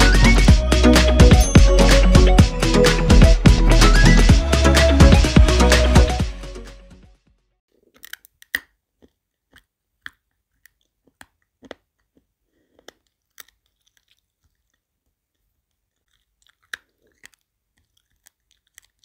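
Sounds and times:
dog crunching dry kibble: 7.8 - 19.0.

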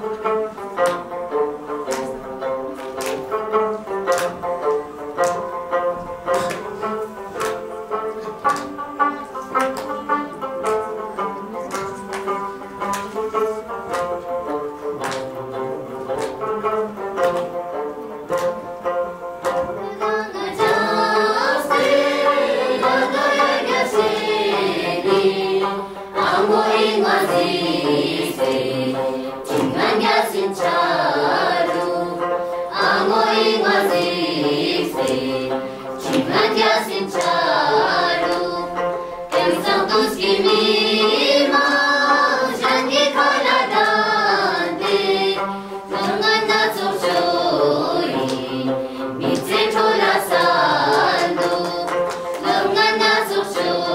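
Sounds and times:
plucked lute: 0.0 - 53.9
children singing: 19.4 - 53.9.

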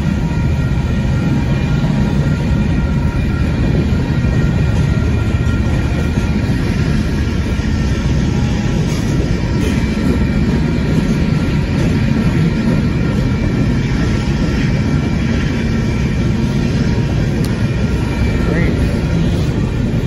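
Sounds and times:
freight train rumbling past: 0.0 - 20.0.

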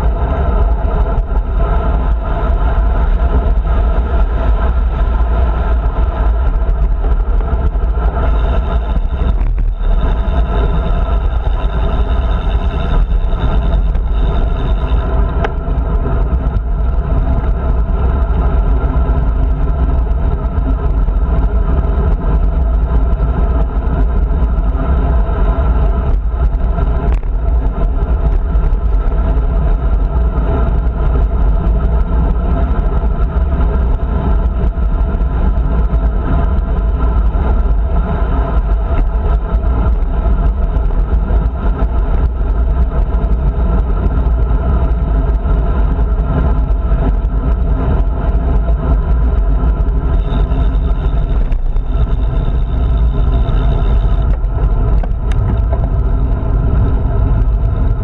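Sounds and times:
wind rumble on microphone: 0.0 - 58.0.

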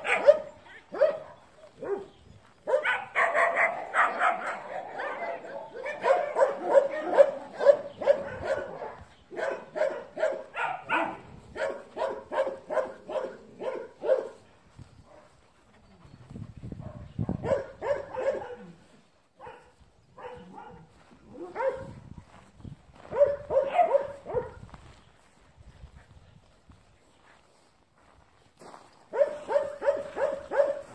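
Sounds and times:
dog barking: 0.0 - 14.5, 16.8 - 18.8, 19.4 - 22.0, 23.1 - 24.7, 29.1 - 30.9.

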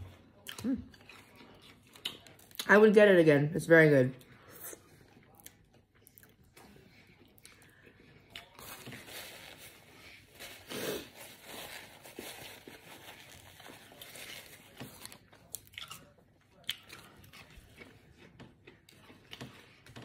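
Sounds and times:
paper wrapper crinkling: 8.6 - 15.3.

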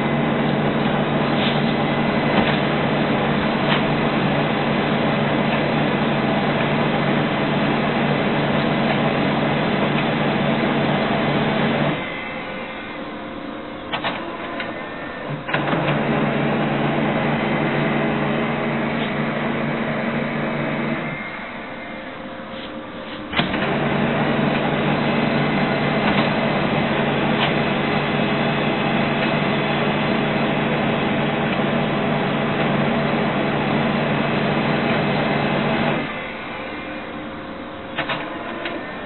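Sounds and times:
printer mechanism humming: 0.0 - 39.0
printer clicks: 2.3 - 4.0, 13.9 - 16.7, 23.2 - 29.6, 37.9 - 38.9.

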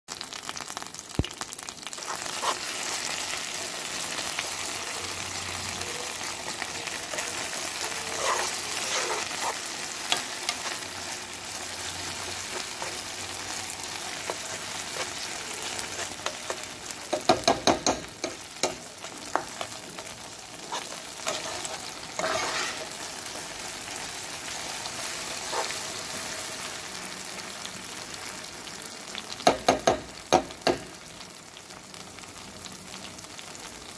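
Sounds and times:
tomato paste sizzling in oil: 0.1 - 33.9
metal spoon scraping pan: 2.0 - 2.7, 6.9 - 19.7, 20.6 - 23.1, 25.4 - 25.8.

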